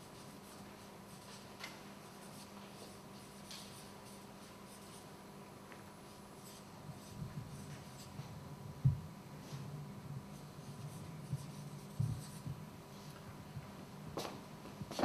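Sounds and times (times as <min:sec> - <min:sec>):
room hum: 0:00.0 - 0:15.0
soft low thumps: 0:08.7 - 0:09.2, 0:11.2 - 0:12.7.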